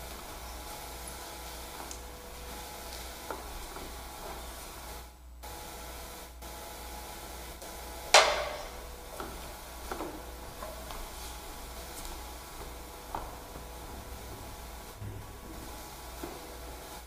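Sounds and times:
faint steady hum: 0:00.0 - 0:17.0
plates clattering with a ring: 0:08.2 - 0:08.9
soft knocks of plates: 0:08.2 - 0:09.4.

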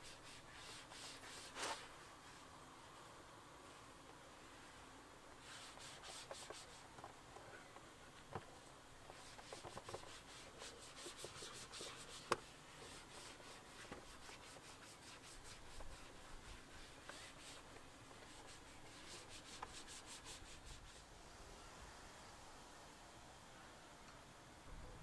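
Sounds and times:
sponge wiping plastic: 0:00.0 - 0:02.5, 0:05.4 - 0:06.9, 0:09.1 - 0:21.0.

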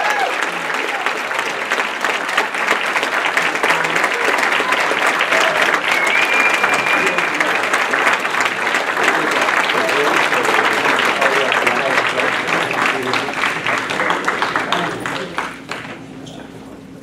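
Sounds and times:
audience applauding: 0:00.0 - 0:16.1.

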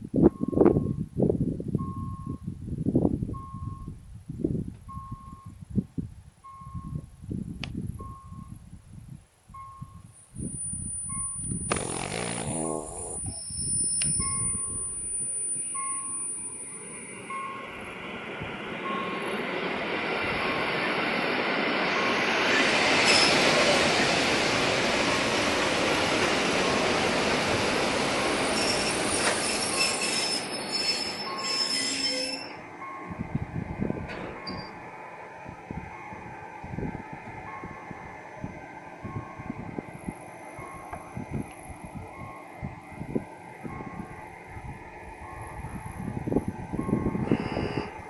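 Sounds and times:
brake and wheel squeal: 0:10.4 - 0:17.2, 0:23.0 - 0:23.5, 0:28.4 - 0:32.6, 0:47.2 - 0:48.0.

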